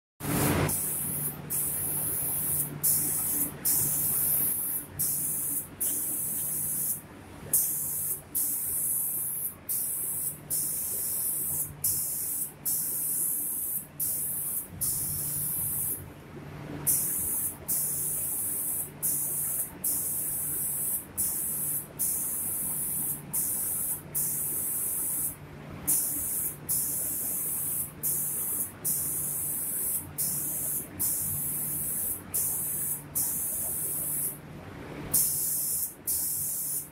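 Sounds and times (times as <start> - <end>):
spray gun hissing: 0.2 - 16.0, 16.9 - 34.4, 35.1 - 36.9
low machine hum: 14.1 - 17.4, 33.5 - 35.2.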